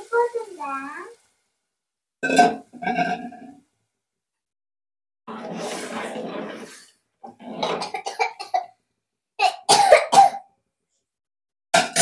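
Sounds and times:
person coughing: 9.4s - 10.5s.

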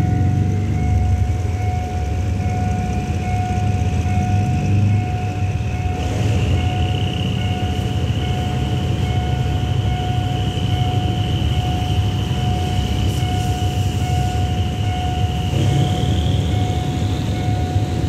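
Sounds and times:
crossing warning beep: 0.0s - 18.0s
high whine: 0.0s - 18.0s
train coaches rumbling past: 0.0s - 18.0s.

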